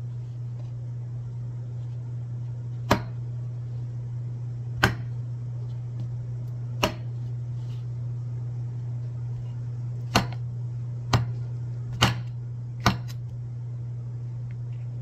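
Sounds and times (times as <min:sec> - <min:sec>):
steady low hum: 0:00.0 - 0:15.0
knife chopping on wooden board: 0:02.8 - 0:03.2, 0:04.8 - 0:05.1, 0:06.8 - 0:07.2, 0:10.1 - 0:10.4, 0:11.1 - 0:13.2.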